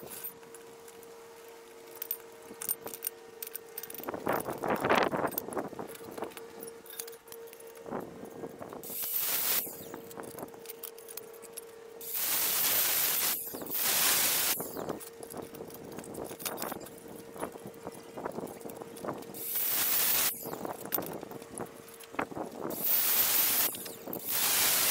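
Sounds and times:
faint steady hum: 0.0s - 24.9s
metal tubing clinking: 8.8s - 24.9s.

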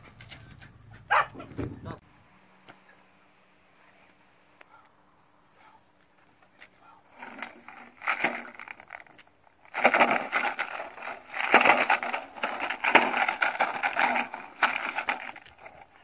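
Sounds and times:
plastic bottle and bag crunching: 7.1s - 16.0s.

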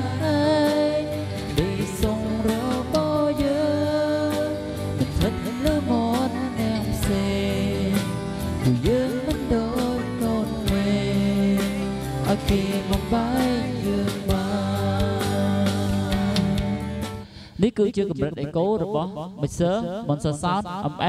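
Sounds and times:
song with singing and drum beat: 0.0s - 17.3s.

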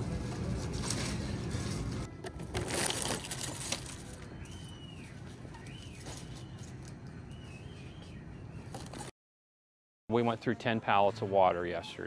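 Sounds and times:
plastic wrap crinkling and rustling: 0.0s - 7.0s.

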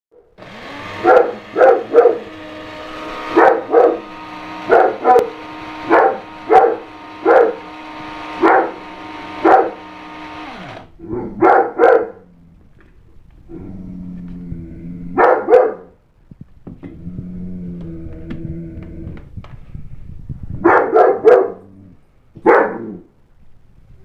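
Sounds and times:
electric coffee grinder whirring: 0.4s - 11.0s
dog barking: 1.0s - 2.2s, 3.3s - 4.0s, 4.6s - 7.6s, 8.4s - 8.8s, 9.4s - 9.8s, 11.0s - 12.2s, 15.2s - 16.0s, 20.6s - 21.7s, 22.4s - 23.0s.

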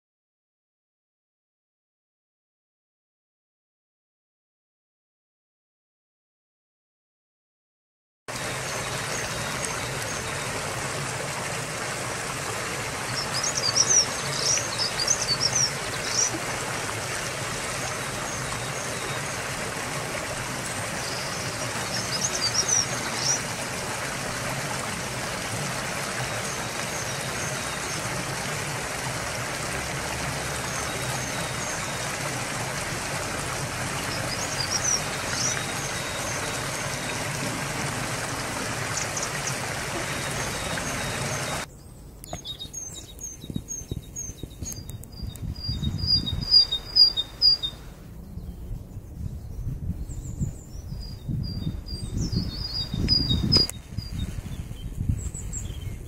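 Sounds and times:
stream water rushing over weir: 8.3s - 41.7s, 46.0s - 48.0s
songbird twittering: 13.0s - 16.4s, 20.9s - 23.5s, 34.0s - 37.2s, 38.9s - 48.6s, 49.3s - 56.0s.

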